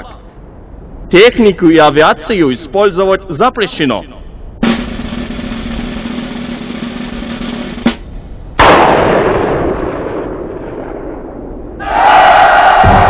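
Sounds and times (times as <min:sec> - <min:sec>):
loud bang: 0:04.6 - 0:08.0, 0:08.6 - 0:13.0
snare drum roll: 0:04.6 - 0:08.8.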